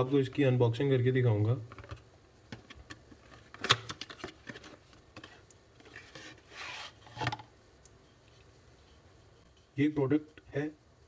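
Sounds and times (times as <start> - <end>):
cardboard flap scraping rustle: 5.8 - 7.4.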